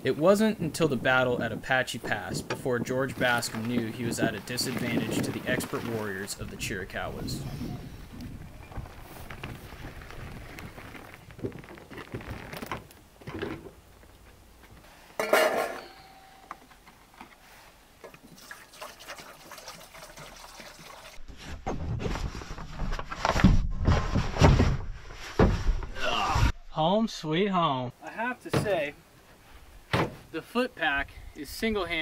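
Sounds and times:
water pouring into steel bowl: 18.4 - 21.2.

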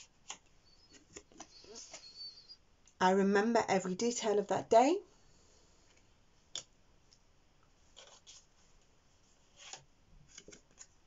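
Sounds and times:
cards tapping and rustling: 9.6 - 10.9.

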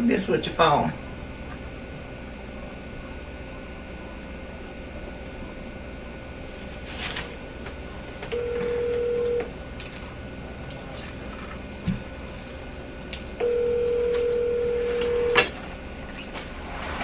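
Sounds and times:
telephone ringback tone: 8.3 - 9.5, 13.4 - 15.4.

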